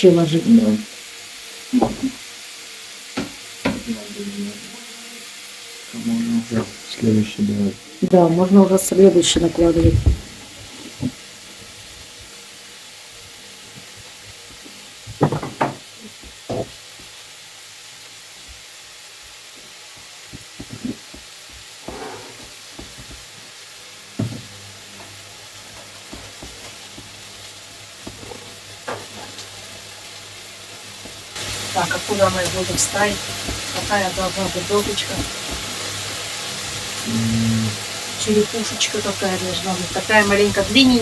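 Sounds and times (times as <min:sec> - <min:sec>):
tortillas sizzling in a pan: 0:00.0 - 0:41.0
knocks on worktop: 0:01.8 - 0:02.1, 0:03.2 - 0:03.9, 0:15.1 - 0:16.8, 0:20.3 - 0:23.3, 0:24.2 - 0:24.5.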